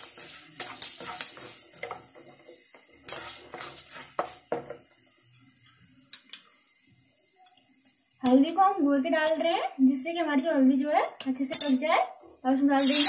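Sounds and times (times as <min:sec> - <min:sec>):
spatula scraping a pan: 0:00.0 - 0:04.6
spices sizzling in hot oil: 0:00.0 - 0:10.9, 0:12.4 - 0:13.0.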